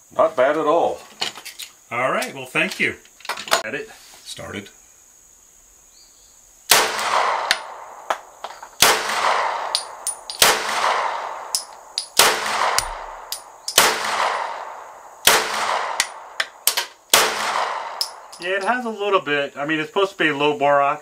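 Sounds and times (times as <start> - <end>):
pistol shots ringing: 8.8 - 18.7
brass casings clinking: 9.3 - 14.7, 17.4 - 18.9.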